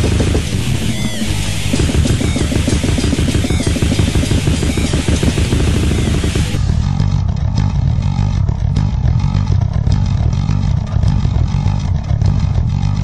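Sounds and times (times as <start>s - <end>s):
fast dense drumming: 0.0s - 7.2s
distorted guitar: 0.0s - 13.0s.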